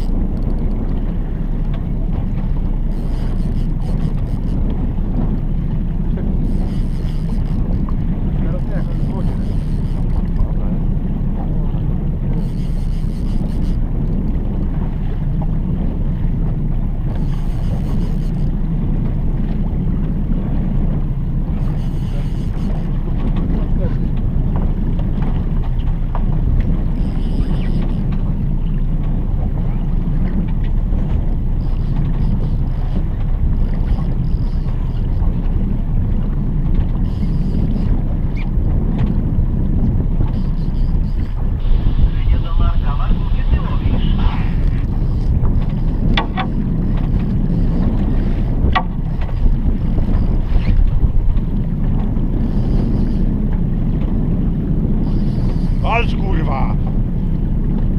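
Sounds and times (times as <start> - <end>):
gear knocking aboard boat: 0.0 - 57.9
outboard motor rumble: 0.0 - 57.9
water along the hull: 0.0 - 57.9
wind on microphone: 0.0 - 57.9.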